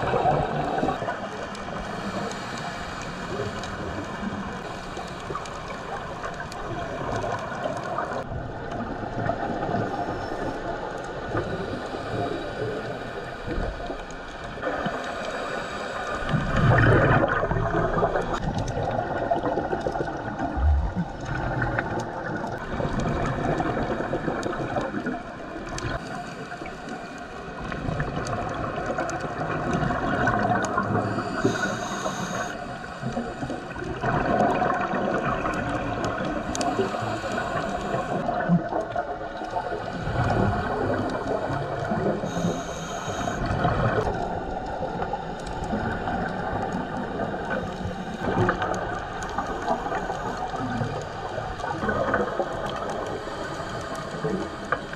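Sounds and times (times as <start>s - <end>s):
bubbles gurgling underwater: 0.0s - 12.9s, 13.5s - 54.9s
scuba regulator breathing: 0.4s - 5.9s, 11.5s - 17.2s, 29.7s - 38.6s, 39.5s - 51.6s, 52.2s - 54.9s
high hiss: 30.9s - 33.8s.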